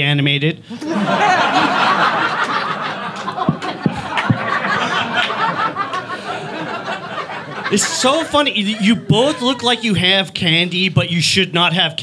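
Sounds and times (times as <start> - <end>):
audience laughing: 0.7 - 10.2.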